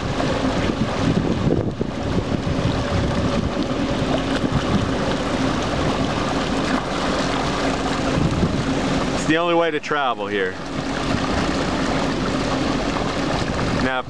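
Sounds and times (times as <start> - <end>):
wind on microphone: 0.0 - 9.7, 10.3 - 14.0
jet ski engine running: 0.0 - 14.0
water rushing: 0.0 - 14.0.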